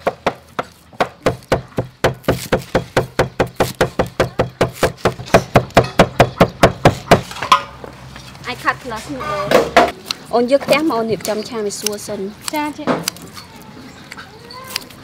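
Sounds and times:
cleaver chopping on wooden board: 0.0 - 7.4.

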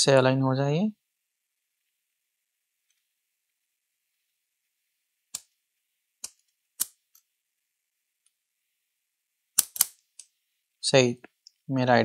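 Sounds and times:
metal stencil clicking: 9.6 - 10.3.

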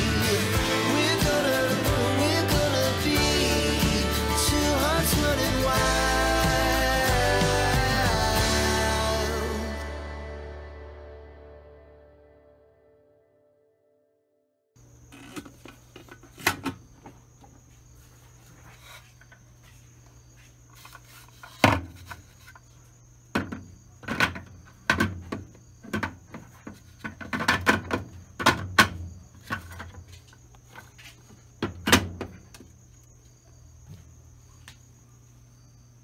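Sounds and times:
low hum: 0.0 - 13.8
plastic parts clicking and knocking: 23.3 - 30.9.

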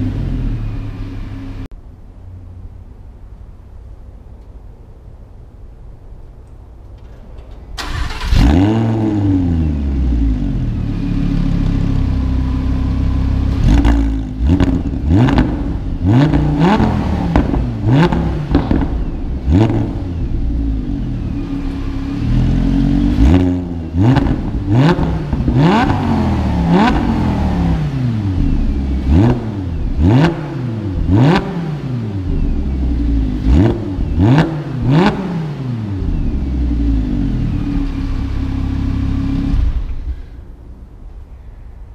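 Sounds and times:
exhaust cracks: 6.4 - 10.8, 13.4 - 40.4
sports car engine revving: 7.8 - 40.2.

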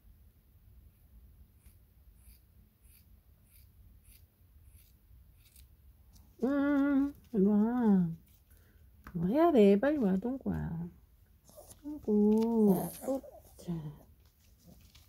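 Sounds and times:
scissors snipping fur: 1.6 - 5.7.

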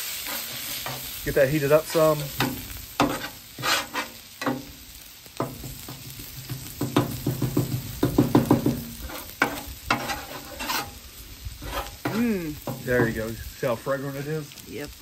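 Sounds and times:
metal spatula scraping and clacking: 0.0 - 4.7, 5.4 - 11.0, 11.6 - 13.3
oil sizzling: 0.0 - 15.0.

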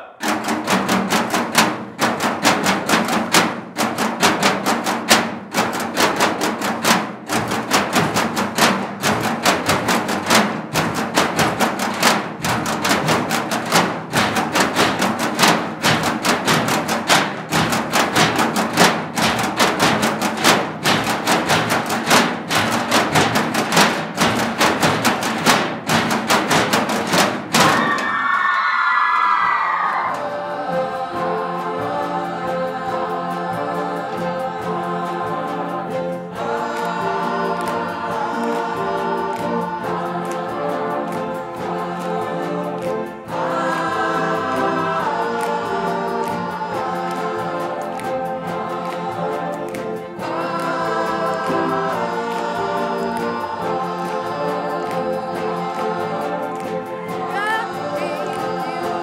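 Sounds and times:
drumsticks beating metal trash cans: 0.0 - 28.2
voices shouting: 27.7 - 30.3.

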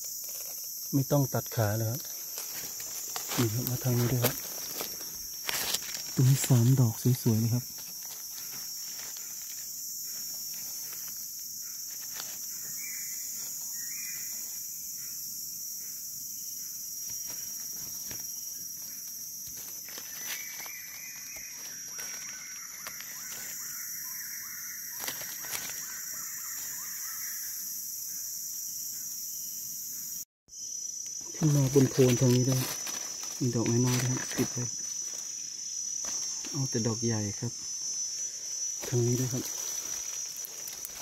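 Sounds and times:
insects chirring: 0.0 - 41.0
dry leaves rustling: 1.9 - 14.6, 17.0 - 27.2, 31.4 - 41.0
bird calling: 19.9 - 27.5.

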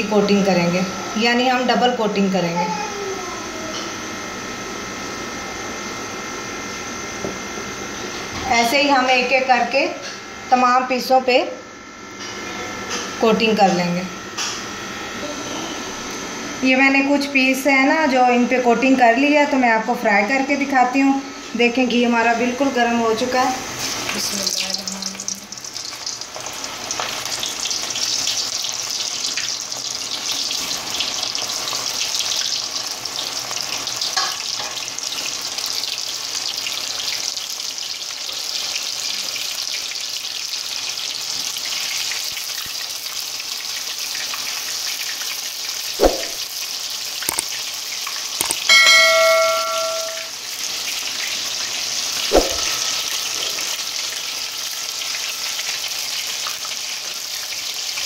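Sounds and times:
deep-frying sizzle: 0.0 - 58.0
short ringing tone: 48.4 - 50.4.

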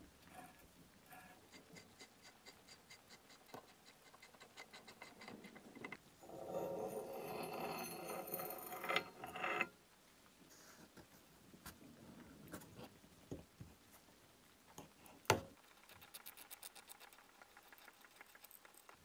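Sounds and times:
brass threads grinding: 6.2 - 9.7.

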